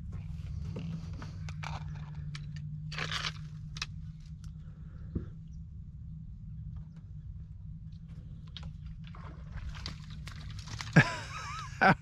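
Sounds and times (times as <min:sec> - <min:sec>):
motor low hum: 0:00.0 - 0:12.0
dry twigs crackling and snapping: 0:08.4 - 0:11.0.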